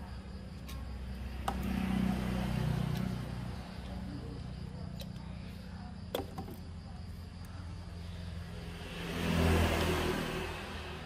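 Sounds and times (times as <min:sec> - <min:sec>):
motor vehicle passing: 0:01.0 - 0:05.8, 0:07.6 - 0:11.0.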